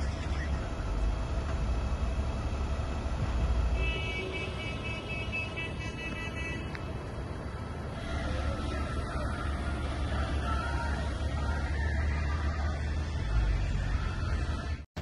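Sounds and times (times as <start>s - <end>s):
truck engines rumbling: 0.0s - 15.0s
truck horn: 3.7s - 6.9s.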